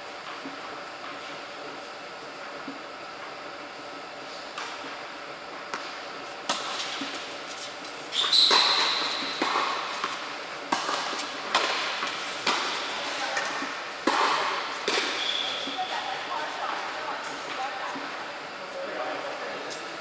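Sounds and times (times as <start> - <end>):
balls bouncing on hard court: 5.6 - 18.1
tennis balls struck by rackets: 5.7 - 7.3, 8.4 - 15.8
high squeal: 8.1 - 9.4.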